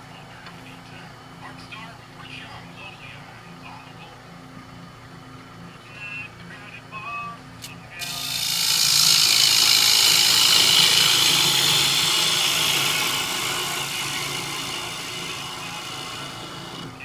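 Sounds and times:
gouge hissing on spinning wood: 8.0s - 17.0s
lathe motor hum: 8.0s - 17.0s.

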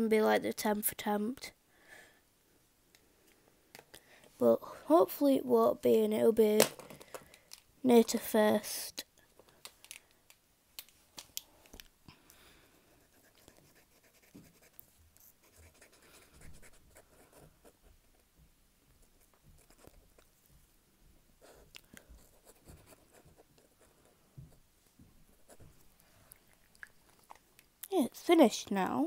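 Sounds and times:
faint clicks and scratching: 13.1s - 20.7s, 21.5s - 27.9s.

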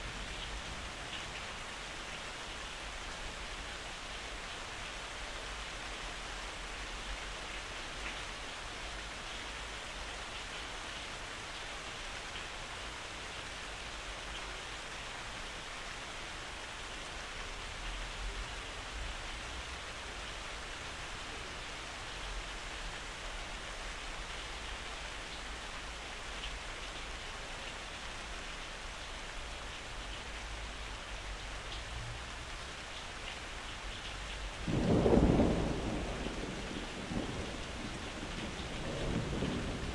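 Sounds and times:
steady rain falling: 0.0s - 39.9s
thunder rumble: 34.6s - 39.9s.

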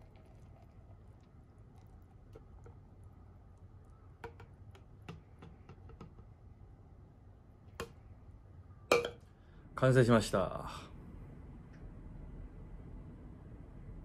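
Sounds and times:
shake pouring into glass: 0.0s - 1.2s
low room hum: 0.0s - 14.0s.

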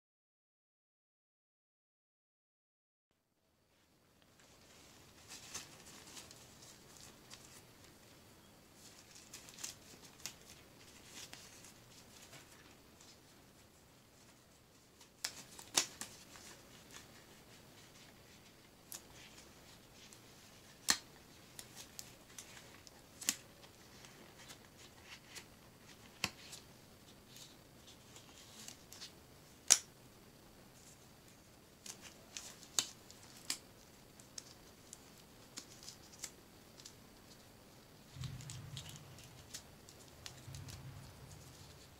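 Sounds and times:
rubber gloves rustling and stretching: 3.7s - 29.7s, 30.7s - 41.9s
rubber glove snapping: 20.8s - 21.7s.

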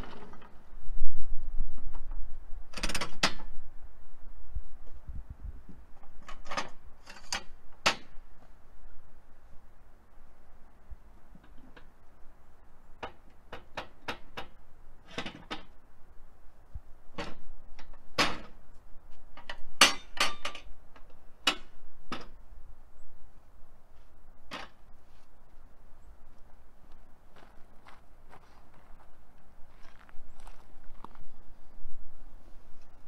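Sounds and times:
wooden knocks and clunks: 17.1s - 18.6s.

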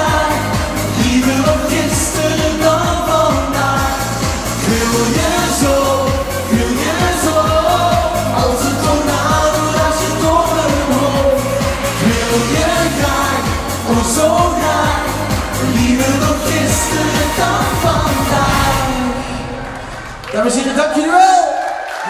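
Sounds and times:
pop song over pa system: 0.0s - 22.0s.

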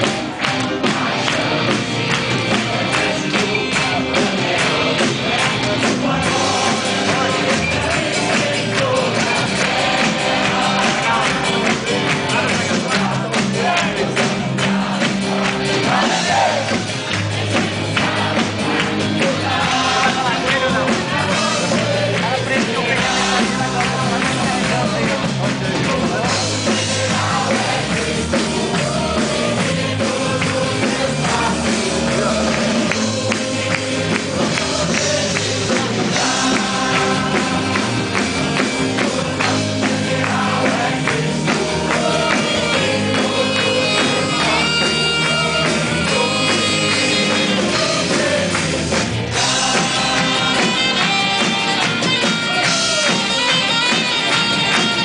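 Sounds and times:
drums: 0.0s - 55.0s
guitar: 0.0s - 55.0s
person singing: 0.8s - 55.0s.

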